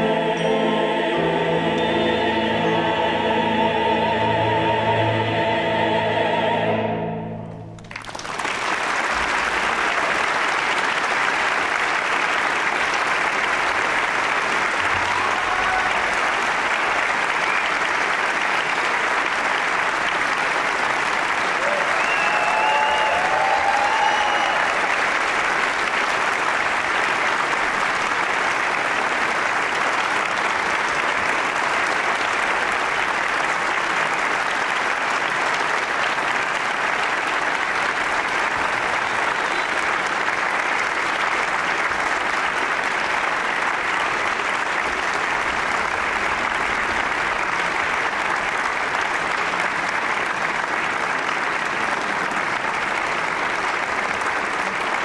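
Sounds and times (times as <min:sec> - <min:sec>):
large audience applauding: 0:07.7 - 0:55.0.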